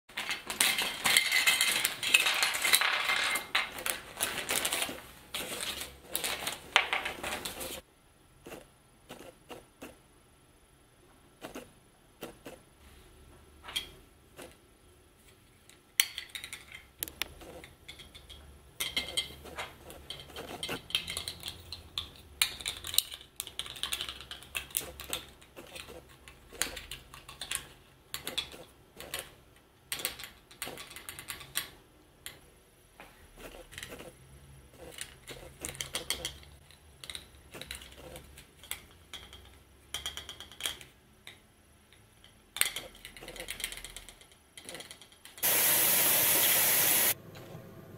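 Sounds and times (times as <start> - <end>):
small hard objects clicking: 19.9 - 29.3.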